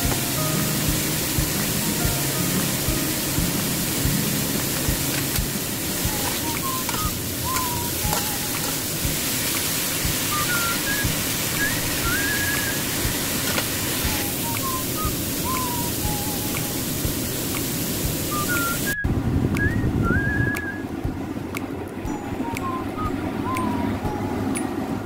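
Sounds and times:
vegetables sizzling in oil: 0:00.0 - 0:19.0
faint high-pitched notes: 0:00.0 - 0:20.9, 0:22.0 - 0:25.0.

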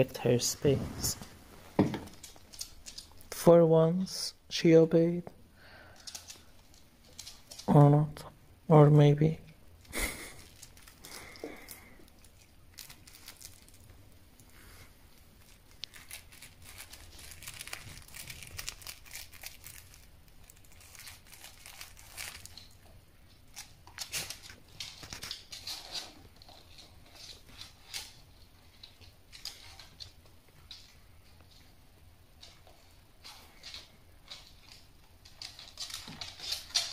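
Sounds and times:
plush toy fabric rustling: 0:00.4 - 0:01.9.

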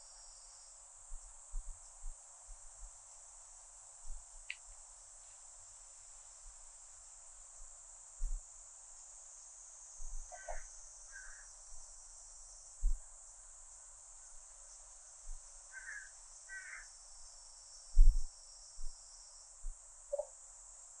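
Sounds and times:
cicada chorus: 0:00.0 - 0:21.0
short bird calls: 0:10.3 - 0:11.4.

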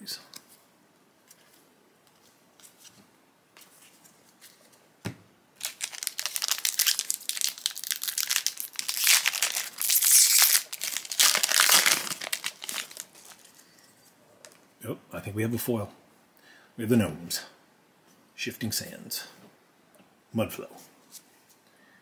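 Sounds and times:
foil wrapper tearing and crinkling: 0:05.6 - 0:13.6.

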